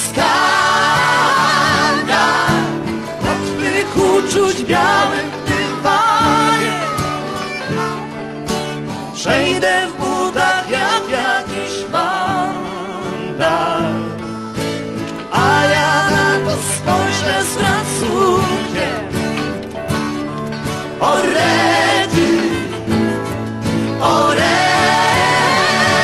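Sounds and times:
person singing: 0:00.0 - 0:08.2, 0:08.8 - 0:19.3
strummed acoustic guitar: 0:00.0 - 0:26.0.

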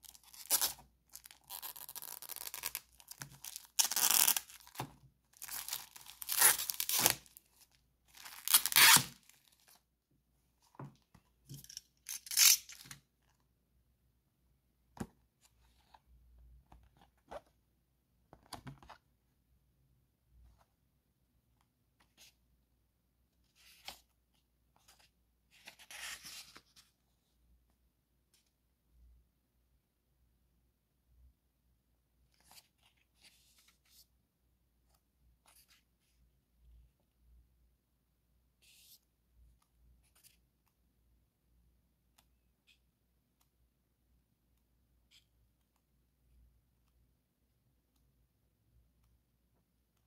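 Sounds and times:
book pages turning: 0:23.6 - 0:27.0.

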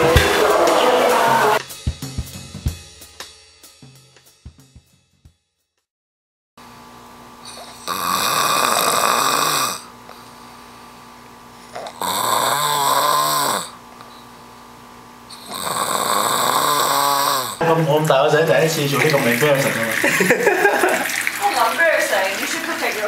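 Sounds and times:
man snoring loudly: 0:07.5 - 0:09.9, 0:11.8 - 0:13.8, 0:15.4 - 0:17.6.

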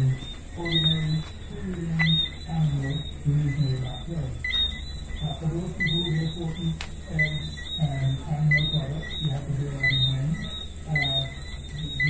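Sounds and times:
frogs and insects chirping: 0:00.0 - 0:12.0
high pulsing hiss: 0:00.0 - 0:12.0.

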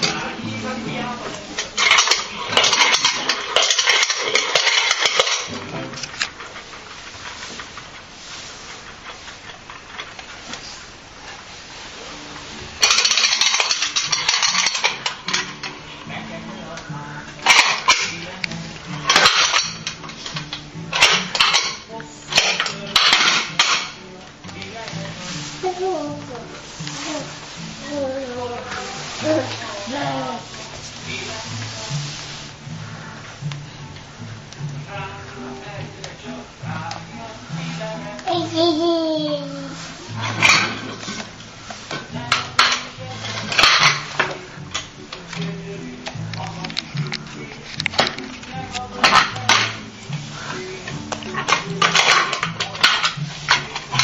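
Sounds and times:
spinning top pump rattling: 0:00.0 - 0:10.5, 0:12.8 - 0:15.8.

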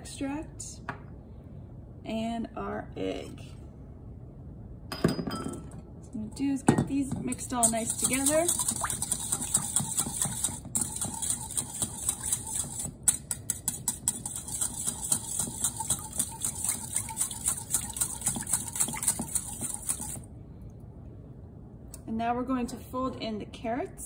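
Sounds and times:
whisk clicking against glass bowl: 0:07.3 - 0:20.2
wet swishing: 0:07.6 - 0:12.9, 0:14.4 - 0:20.3.

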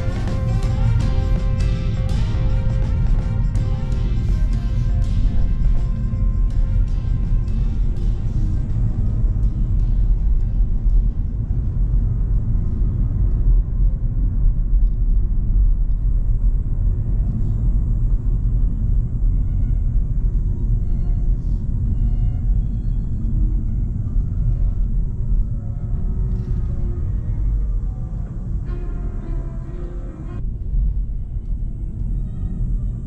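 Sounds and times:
car driving rumble: 0:00.0 - 0:33.0
faint music: 0:00.0 - 0:33.0.

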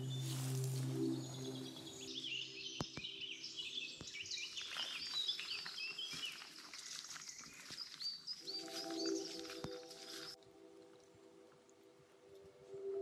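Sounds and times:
soft held music tones: 0:00.0 - 0:03.2
woodland birds singing: 0:00.0 - 0:10.4.

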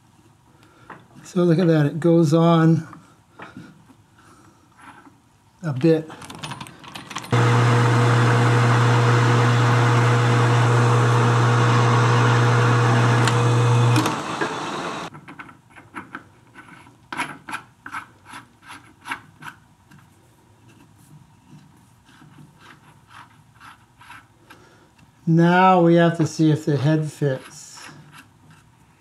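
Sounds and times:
metal lathe humming: 0:07.3 - 0:15.1.

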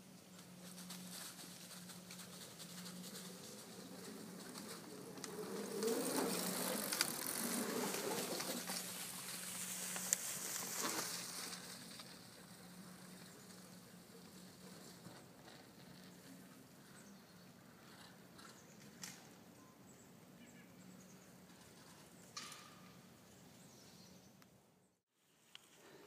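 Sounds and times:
tyres crackling in dry leaves: 0:00.2 - 0:16.6.

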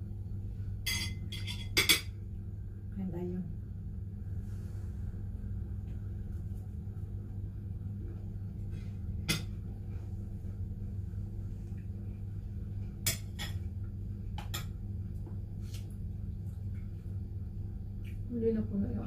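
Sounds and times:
steady low hum: 0:00.0 - 0:19.0
spoon clinking on ceramic: 0:00.8 - 0:02.1.

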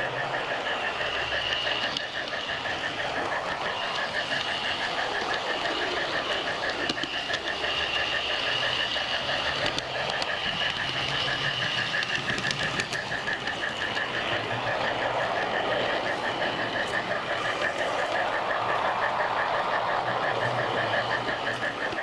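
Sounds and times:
model train running on track: 0:00.0 - 0:22.0
sharp clicks: 0:03.2 - 0:14.4.

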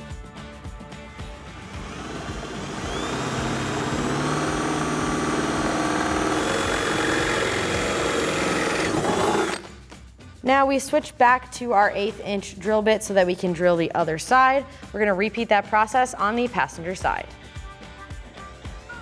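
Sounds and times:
cordless drill whining: 0:01.0 - 0:09.7.

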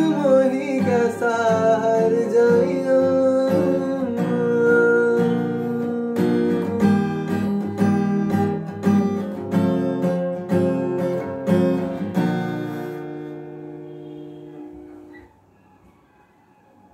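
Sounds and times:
acoustic guitar strumming: 0:00.0 - 0:16.2.

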